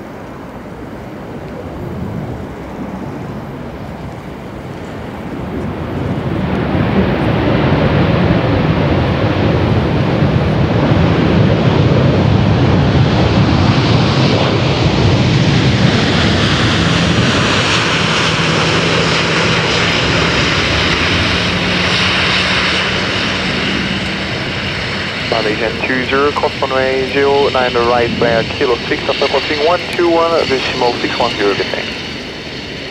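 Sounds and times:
jet engines roaring: 0:00.0 - 0:32.9
steady low hum: 0:16.9 - 0:32.0.

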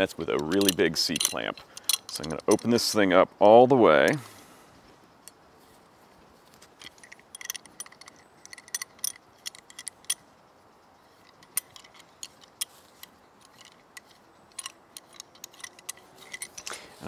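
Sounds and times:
metal clamp clicking: 0:00.2 - 0:03.0, 0:06.7 - 0:10.3, 0:11.2 - 0:16.8.

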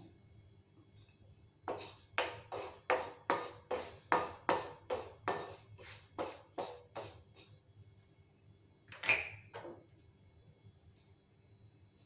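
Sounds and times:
spoon scraping grains in pan: 0:01.7 - 0:07.5.

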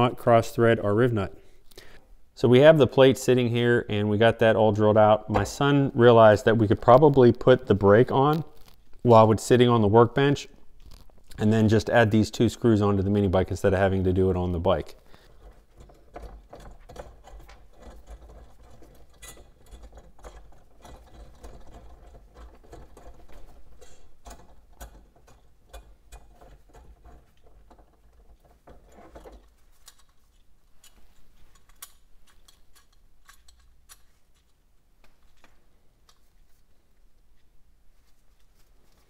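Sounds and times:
small metal parts clicking: 0:15.2 - 0:34.6.

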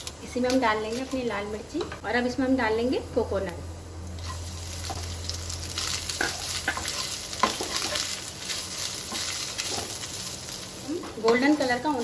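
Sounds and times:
coconut sizzling in oil: 0:04.0 - 0:12.0.

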